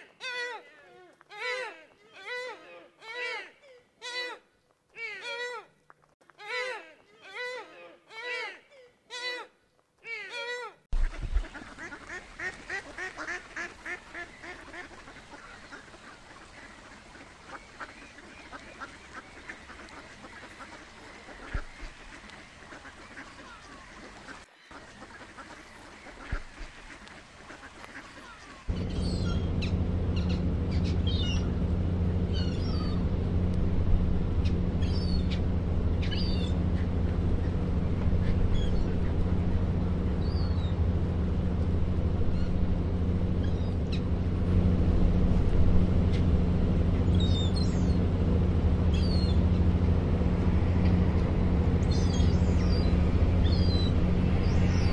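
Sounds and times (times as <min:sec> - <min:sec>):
ducks quacking: 0:10.2 - 0:33.7, 0:34.3 - 0:44.4, 0:45.2 - 0:54.9
loud low rumble: 0:28.7 - 0:54.9.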